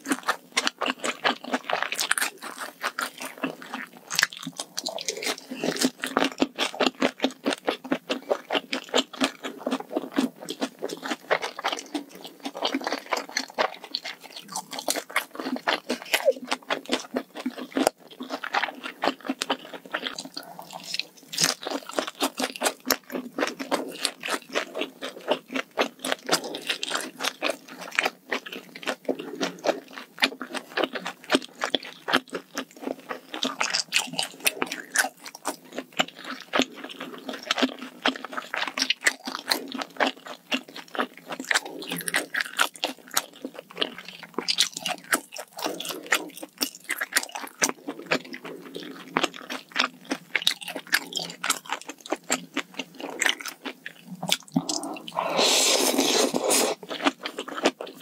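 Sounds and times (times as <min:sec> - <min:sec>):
close chewing mouth clicks: 0:00.0 - 0:58.0.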